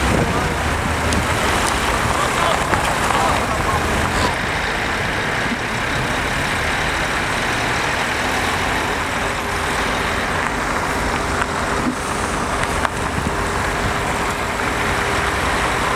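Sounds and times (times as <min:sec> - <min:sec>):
heavy truck engine rumbling: 0:00.0 - 0:15.9
street traffic noise: 0:00.0 - 0:15.9.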